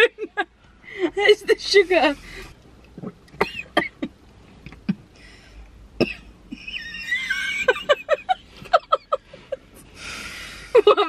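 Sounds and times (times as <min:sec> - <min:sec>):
woman laughing: 0:00.0 - 0:00.5, 0:06.5 - 0:09.6, 0:10.7 - 0:11.0
woman breathing sharply: 0:09.3 - 0:10.8.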